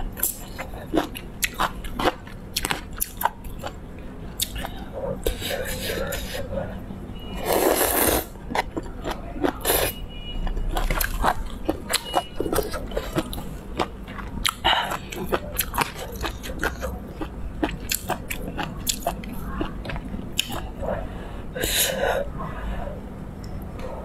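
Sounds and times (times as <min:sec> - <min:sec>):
person chewing noodles: 0:00.0 - 0:06.8, 0:07.4 - 0:22.3
slurping: 0:07.4 - 0:10.0.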